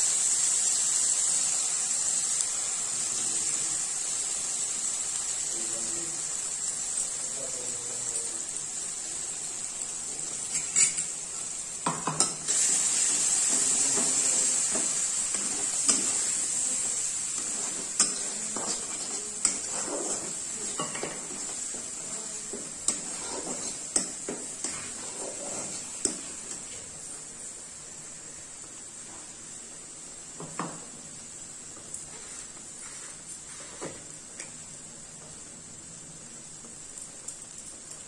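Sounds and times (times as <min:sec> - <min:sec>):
paste sizzling in hot oil: 0:00.0 - 0:36.8
spatula scraping a pan: 0:10.4 - 0:11.2, 0:12.5 - 0:26.7.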